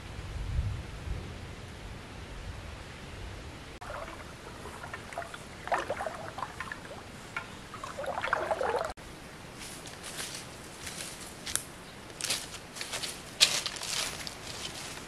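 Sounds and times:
river water splashing: 0:03.8 - 0:09.0.

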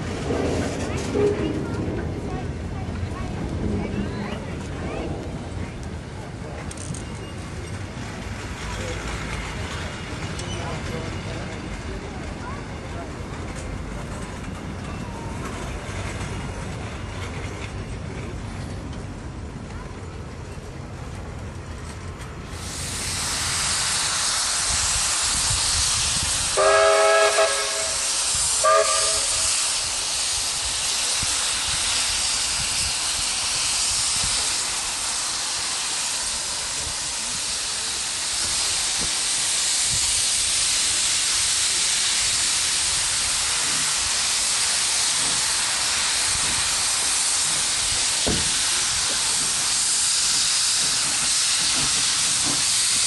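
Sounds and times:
steam hissing: 0:22.5 - 0:53.0
steam whistle: 0:26.6 - 0:29.6.

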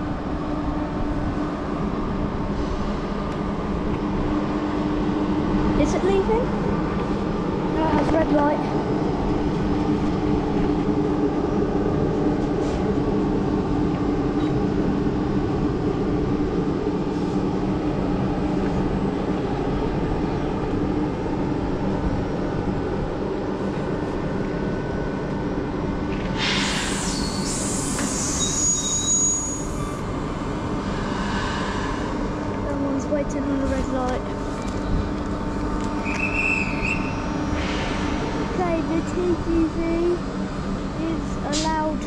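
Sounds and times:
electric locomotive humming: 0:00.0 - 0:42.0
high-pitched wheel squeal: 0:26.9 - 0:30.1.

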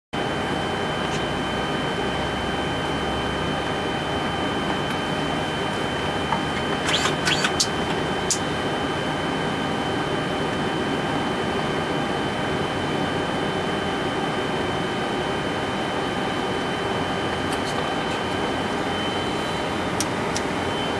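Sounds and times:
jet engines humming and whining: 0:00.2 - 0:20.9
sharp clicks: 0:06.3 - 0:08.4.

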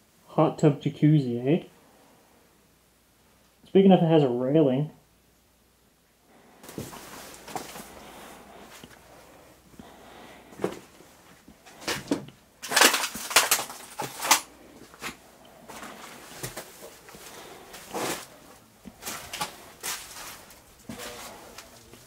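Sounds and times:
footsteps crunching over debris: 0:06.6 - 0:09.1, 0:09.8 - 0:22.0.

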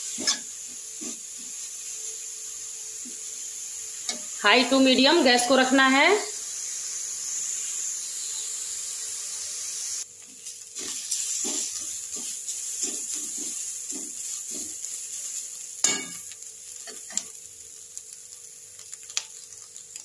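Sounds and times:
carrots sizzling in a pan: 0:00.0 - 0:20.0
metal ladle scraping a pan: 0:00.2 - 0:01.2, 0:10.8 - 0:14.9
ladle clanking on a pan: 0:15.8 - 0:16.2.

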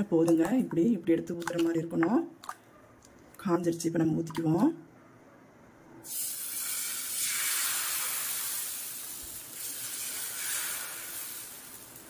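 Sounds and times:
batter sizzling on hot griddle: 0:06.0 - 0:12.0.

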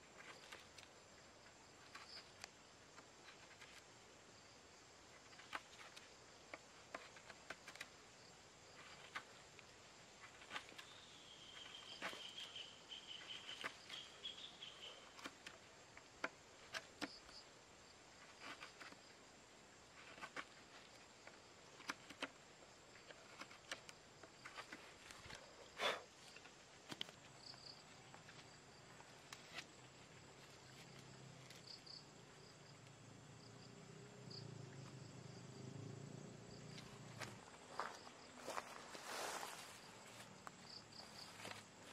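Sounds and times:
knife shaving wood: 0:00.0 - 0:01.0, 0:01.7 - 0:03.9, 0:05.2 - 0:08.0, 0:08.6 - 0:17.4, 0:18.2 - 0:19.1, 0:19.8 - 0:22.4, 0:23.0 - 0:27.2
high insect hum: 0:00.0 - 0:41.9.

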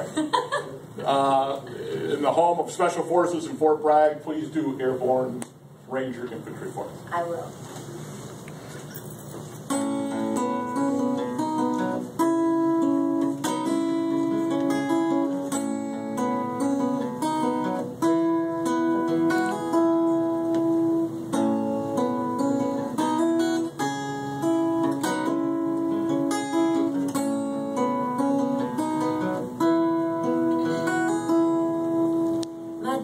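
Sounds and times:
acoustic guitar: 0:00.0 - 0:05.2, 0:07.1 - 0:33.0.

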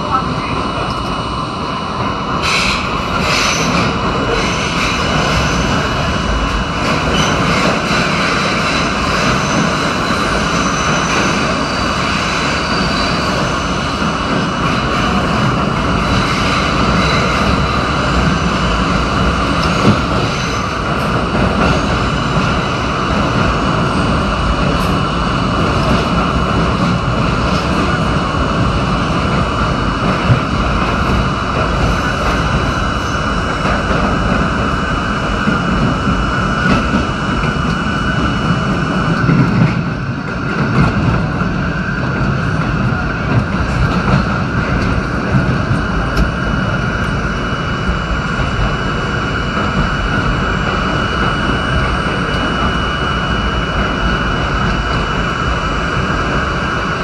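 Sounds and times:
sharp clacks of train wheels: 0:00.0 - 0:57.0
subway train wheels roaring on rail: 0:00.0 - 0:57.0.

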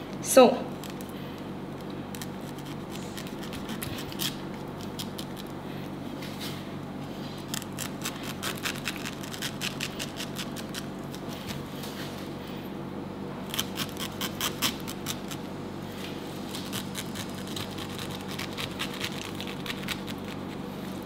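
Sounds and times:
low steady hum: 0:00.0 - 0:21.0
knife cutting pineapple: 0:07.4 - 0:11.7.

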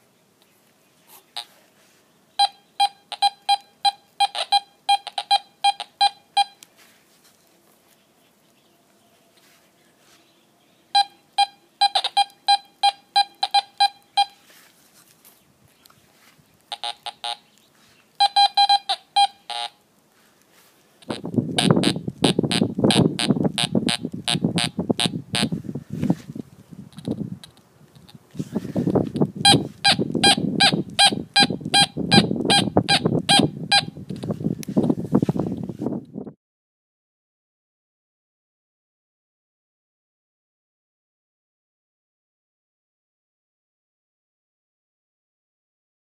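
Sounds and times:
metal detector beeping: 0:02.4 - 0:06.6, 0:10.9 - 0:14.4, 0:16.7 - 0:17.4, 0:18.2 - 0:19.8, 0:29.4 - 0:34.0.

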